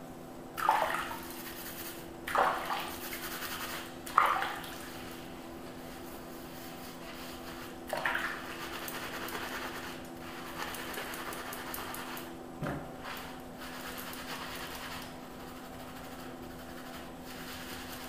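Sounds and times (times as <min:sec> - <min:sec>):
steady low hum: 0:00.0 - 0:18.0
soap lathering a beard: 0:06.6 - 0:12.2.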